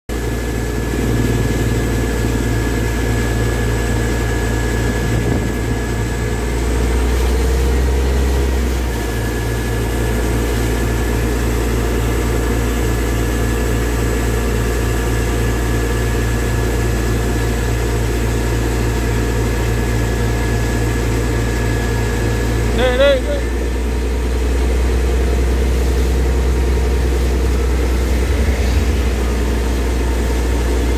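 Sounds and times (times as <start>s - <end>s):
tractor engine running: 0.1s - 14.3s.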